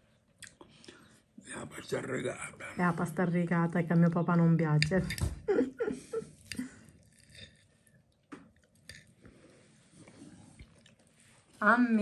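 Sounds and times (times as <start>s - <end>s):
cutlery clicking on plate: 4.8s - 5.4s.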